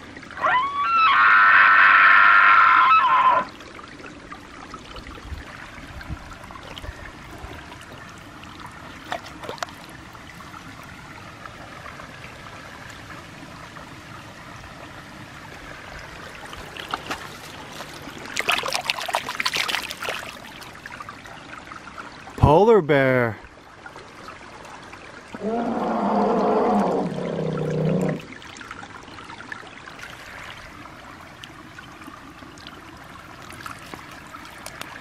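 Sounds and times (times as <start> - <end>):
creek trickling over rocks: 0.0 - 35.0.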